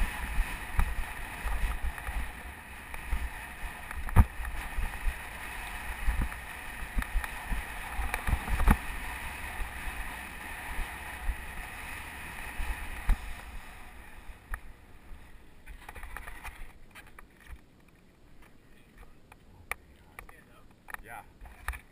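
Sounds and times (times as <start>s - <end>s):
bike knocks and rattles: 0.0s - 11.6s
bike tyre noise on dirt: 0.0s - 21.9s
scattered clicks: 15.8s - 21.9s.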